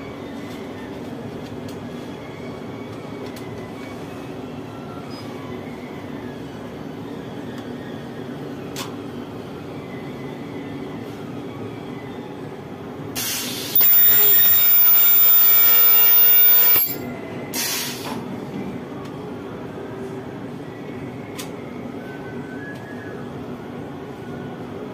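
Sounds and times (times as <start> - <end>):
ultrasonic welder screech: 13.8 - 17.0.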